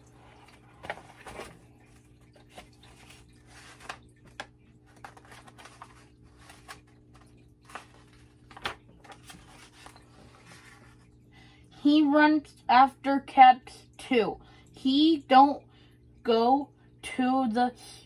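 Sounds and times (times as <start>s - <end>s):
faint steady hum: 0.0s - 18.0s
book pages turning: 0.2s - 11.1s.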